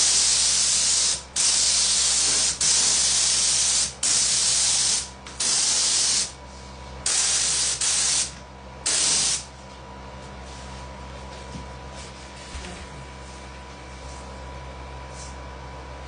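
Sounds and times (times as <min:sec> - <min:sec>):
spray gun hissing: 0:00.0 - 0:06.4, 0:07.1 - 0:08.3, 0:08.9 - 0:09.4.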